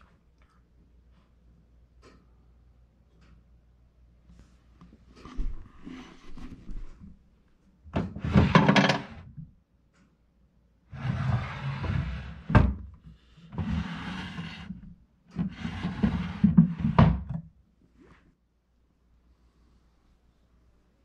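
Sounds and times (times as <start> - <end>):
wooden drawer sliding: 8.0 - 9.2, 11.0 - 12.8, 13.6 - 14.8, 15.4 - 17.3.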